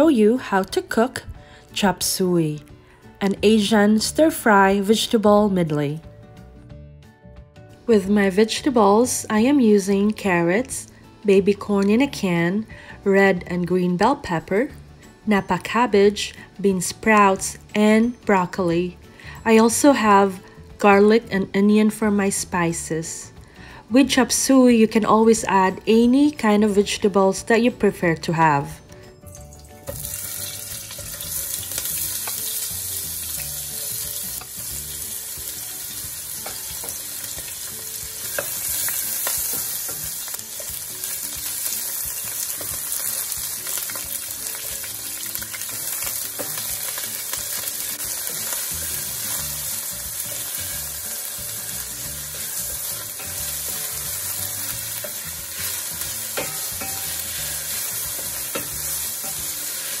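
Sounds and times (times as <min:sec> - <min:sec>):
onion sizzling in oil: 0:29.2 - 1:00.0.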